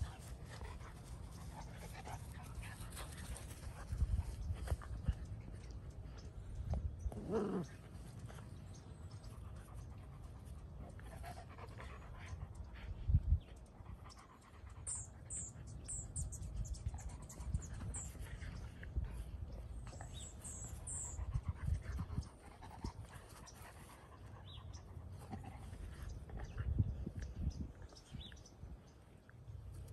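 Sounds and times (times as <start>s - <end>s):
dogs playing: 0.0s - 29.9s.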